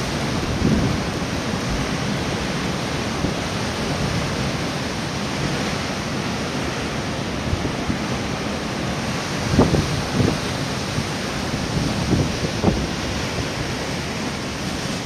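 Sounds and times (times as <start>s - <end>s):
wind buffeting microphone: 0.0s - 2.1s, 9.2s - 13.8s.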